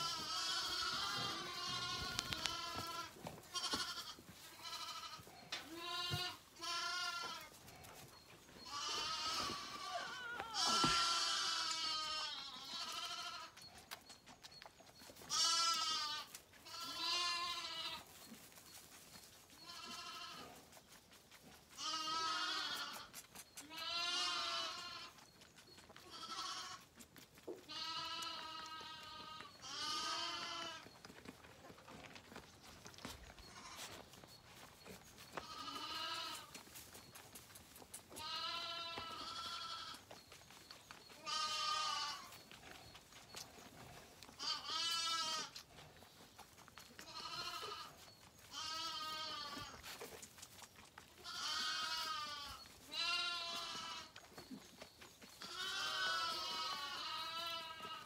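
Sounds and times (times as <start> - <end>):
lambs bleating: 0.0 - 7.6, 8.6 - 13.6, 15.2 - 18.1, 19.6 - 20.7, 21.8 - 25.2, 26.0 - 27.0, 27.6 - 31.0, 33.4 - 34.0, 35.3 - 36.6, 38.1 - 40.2, 41.1 - 42.4, 44.2 - 45.9, 47.0 - 50.1, 51.1 - 54.3, 55.4 - 58.0.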